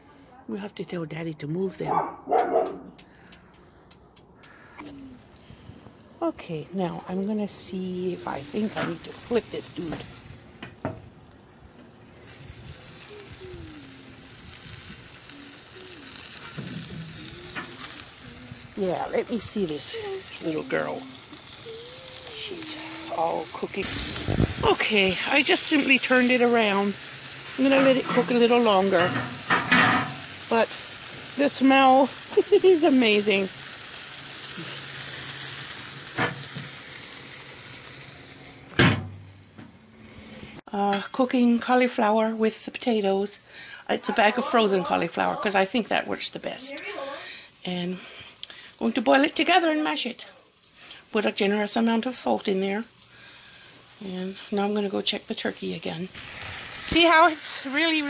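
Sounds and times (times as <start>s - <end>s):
meat sizzling and hissing: 6.8s - 40.7s, 41.4s - 58.0s
loud clunk: 38.7s - 39.7s.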